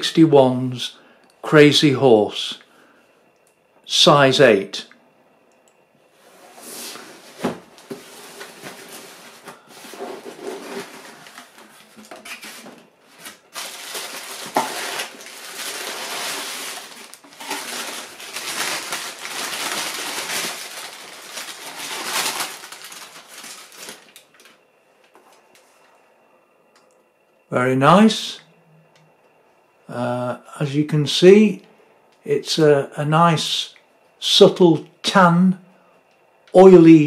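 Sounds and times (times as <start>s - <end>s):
tissue paper rustling: 6.2s - 24.4s.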